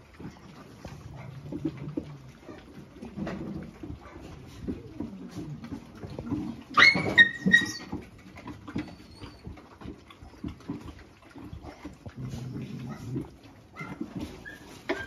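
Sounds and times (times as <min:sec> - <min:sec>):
dogs chewing and jostling: 0:00.0 - 0:15.0
dog yelping: 0:06.7 - 0:09.8, 0:13.8 - 0:15.0.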